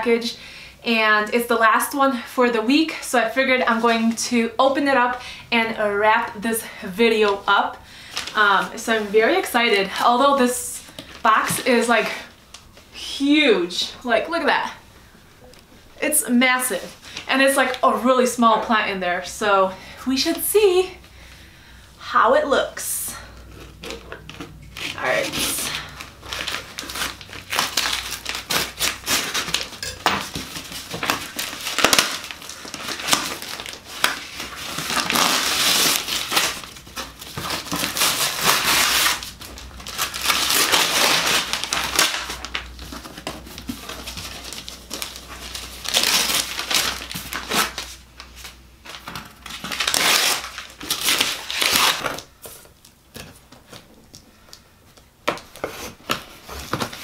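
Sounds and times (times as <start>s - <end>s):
packing paper crumpling: 23.2s - 54.6s.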